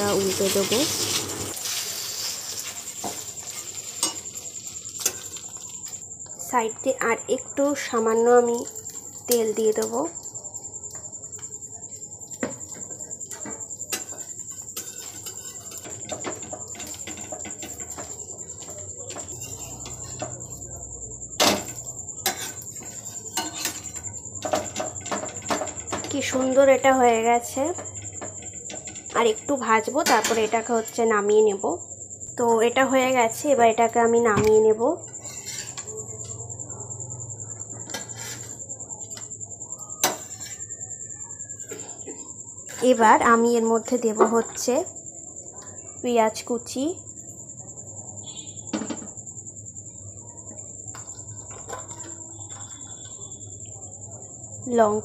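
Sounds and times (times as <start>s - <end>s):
spatula scraping and tapping pan: 0.0s - 6.4s, 7.8s - 31.0s, 34.4s - 36.4s, 37.6s - 39.3s, 40.0s - 40.7s, 50.9s - 53.4s
bread frying in oil: 0.0s - 31.4s, 32.2s - 40.7s, 47.1s - 55.0s
cricket trill: 0.0s - 55.0s
faint sizzle: 0.0s - 55.0s.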